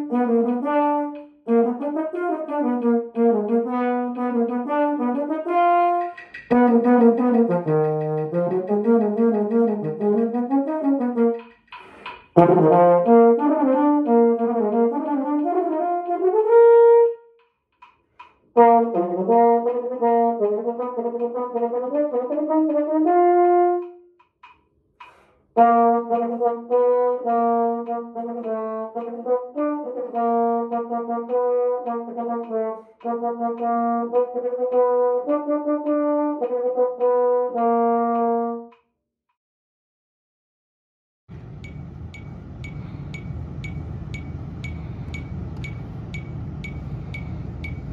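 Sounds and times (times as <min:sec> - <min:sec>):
baritone horn playing runs: 0:00.0 - 0:11.5, 0:12.4 - 0:17.2, 0:18.6 - 0:24.0, 0:25.6 - 0:38.7.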